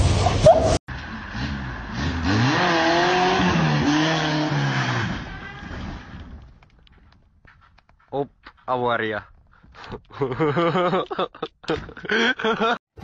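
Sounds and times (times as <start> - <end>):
tyres on wet road: 0.0 - 7.1
car engine revving: 0.9 - 6.3.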